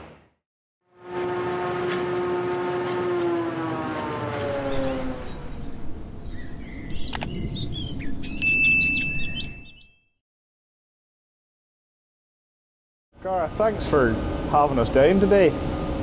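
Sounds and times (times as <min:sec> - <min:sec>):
falling mechanical whine: 0:01.0 - 0:08.0
mouse click: 0:07.1 - 0:07.3
sharp clicks: 0:07.1 - 0:07.4
electronic chirps: 0:08.3 - 0:10.1.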